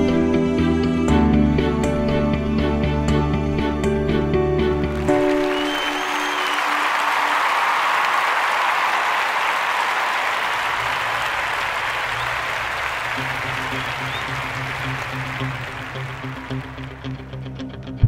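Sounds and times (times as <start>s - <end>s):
background music: 0.0s - 7.6s, 12.8s - 18.0s
crowd applauding and cheering: 4.8s - 17.4s.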